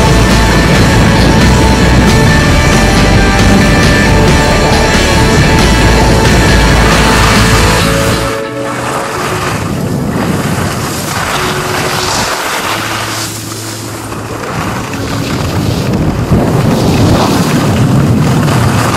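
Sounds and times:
wind rushing over microphone: 0.0s - 18.9s
skis scraping on snow: 4.2s - 18.9s.

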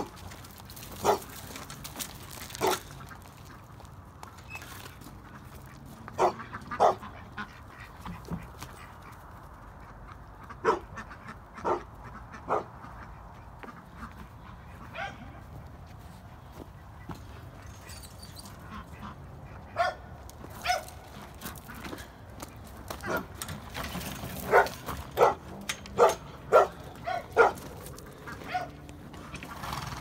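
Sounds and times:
dog barking: 1.0s - 1.3s, 2.6s - 2.8s, 6.2s - 7.1s, 10.6s - 10.9s, 11.6s - 11.9s, 12.5s - 12.7s, 14.9s - 15.4s, 19.8s - 20.0s, 20.6s - 20.9s, 24.5s - 27.7s, 28.4s - 28.8s.

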